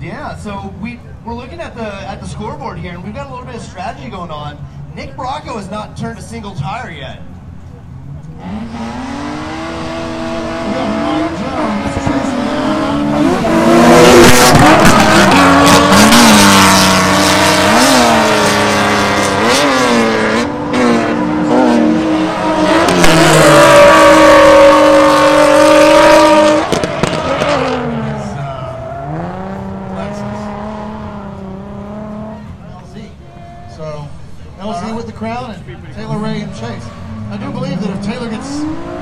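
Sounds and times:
car engines revving: 0.0 - 39.0
tyres squealing: 10.9 - 18.4.

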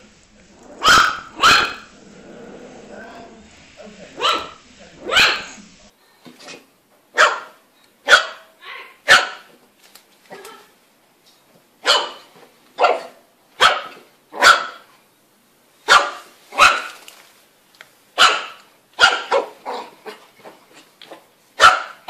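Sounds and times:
puppy barking: 0.6 - 2.0, 4.2 - 5.6, 7.2 - 9.5, 11.8 - 14.9, 15.9 - 17.0, 18.2 - 20.2, 21.6 - 22.0.

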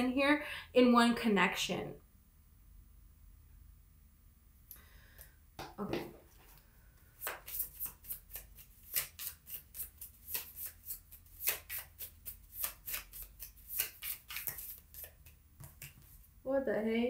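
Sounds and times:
cards being shuffled: 5.9 - 16.3.

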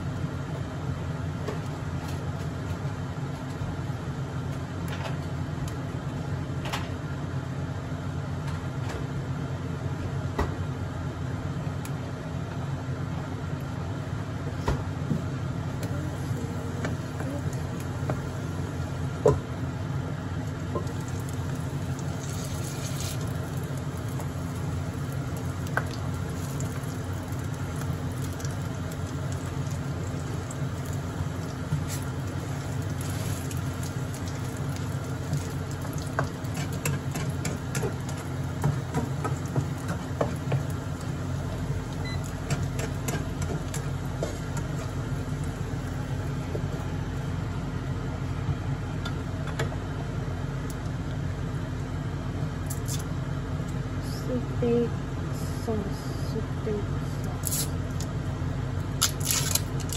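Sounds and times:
constant low hum: 0.0 - 59.9
patties sizzling in a pan: 20.4 - 46.8.

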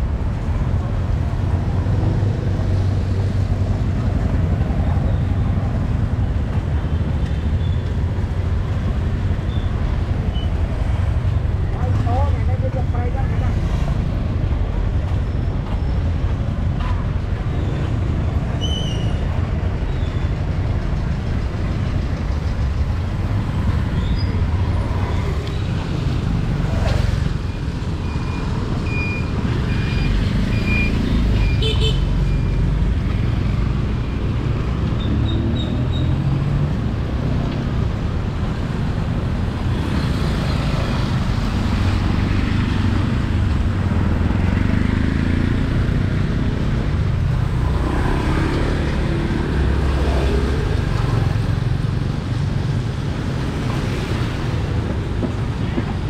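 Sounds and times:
street traffic: 0.0 - 56.0
car horn beeps: 29.8 - 32.6.

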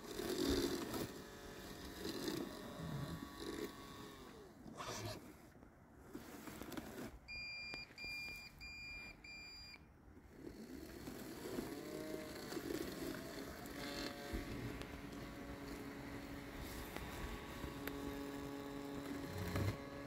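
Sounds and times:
robot mower motors whirring: 0.0 - 7.5, 10.2 - 20.0
short electronic beeps: 7.3 - 9.8.

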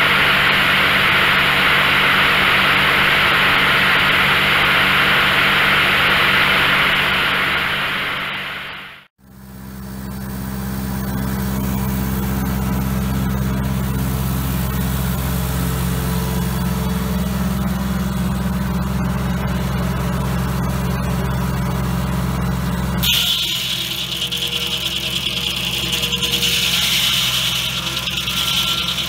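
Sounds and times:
tractor engine running: 10.0 - 29.0
sawmill blade spinning: 23.0 - 29.0.

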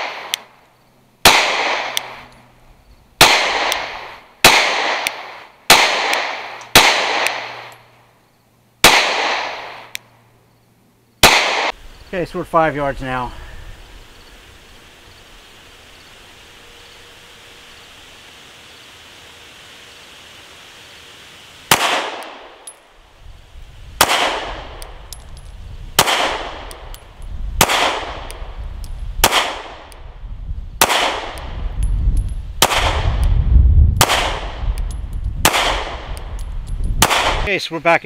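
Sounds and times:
pistol shots with echo: 0.0 - 0.5, 1.2 - 2.2, 3.2 - 7.8, 8.8 - 9.9, 11.2 - 11.8, 21.7 - 22.7, 24.0 - 24.8, 26.0 - 26.8, 27.6 - 28.3, 29.2 - 30.0, 30.8 - 31.4, 32.6 - 33.1, 34.0 - 34.6, 35.4 - 36.1, 37.0 - 37.5.

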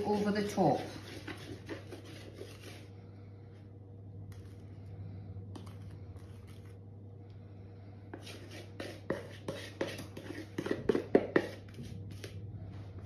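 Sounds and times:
batter scraping in a bowl: 0.0 - 2.9, 5.5 - 6.8, 8.1 - 12.4.

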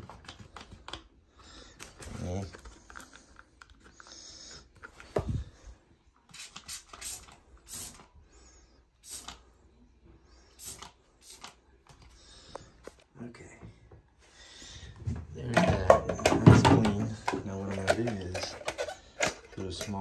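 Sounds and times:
spray bottle hissing sprays: 6.3 - 8.1, 9.0 - 9.4, 10.6 - 11.6.

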